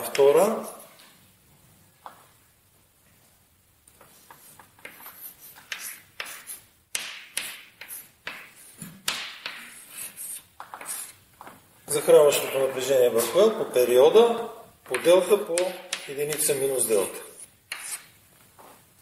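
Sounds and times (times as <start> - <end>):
chalk tapping and scratching on blackboard: 3.9 - 11.6, 14.9 - 18.2.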